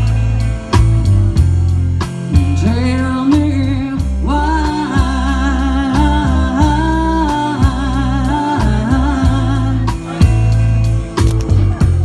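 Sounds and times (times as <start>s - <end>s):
bass line: 0.0s - 12.0s
steady beat: 0.0s - 12.0s
person singing long notes: 2.4s - 10.3s.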